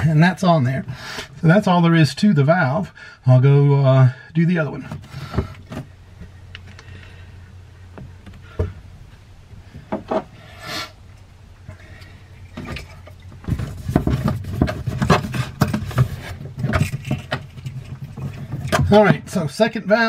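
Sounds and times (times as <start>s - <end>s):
low steady hum: 0.0s - 20.0s
rustle: 4.7s - 19.5s.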